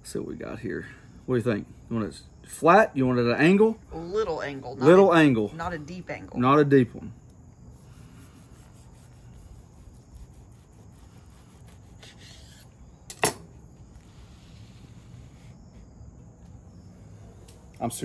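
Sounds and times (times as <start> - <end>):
knife sawing through burrito: 7.7 - 12.8, 13.9 - 15.9.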